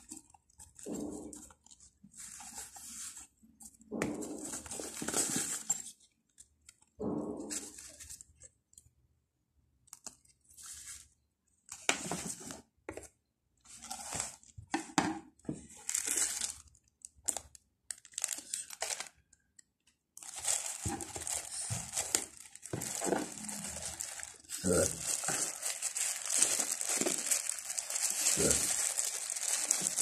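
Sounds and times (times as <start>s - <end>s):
plastic packaging crinkling: 0.0s - 6.9s, 15.6s - 19.5s, 20.2s - 30.0s.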